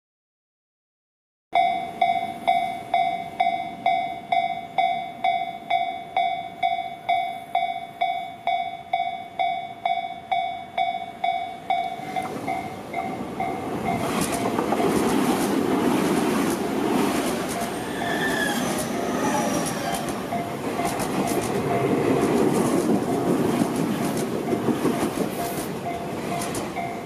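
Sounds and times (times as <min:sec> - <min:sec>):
level crossing bell clanging: 0:01.6 - 0:15.2, 0:17.5 - 0:23.6, 0:24.3 - 0:27.0
electric train approaching: 0:01.6 - 0:27.0
train wheels clattering on rails: 0:11.3 - 0:27.0.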